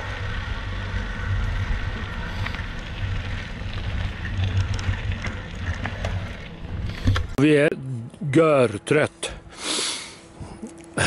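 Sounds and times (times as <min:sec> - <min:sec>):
wind rumbling on microphone: 0:00.0 - 0:07.4
tyres rolling on gravel: 0:00.0 - 0:07.7.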